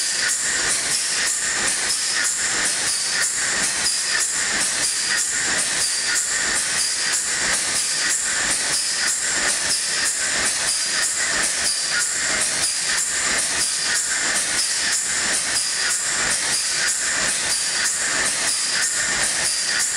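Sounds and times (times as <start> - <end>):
engine-compressor rhythmic clatter: 0.0 - 19.9.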